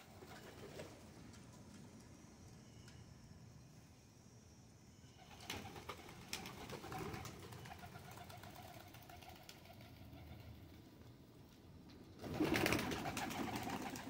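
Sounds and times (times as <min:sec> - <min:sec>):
pigeons cooing: 0:05.2 - 0:10.7.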